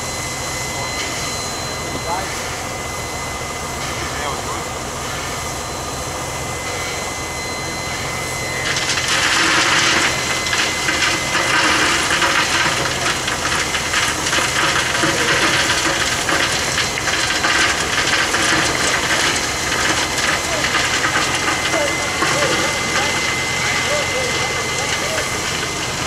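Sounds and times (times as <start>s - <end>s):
coal pouring and rattling: 8.6s - 26.0s.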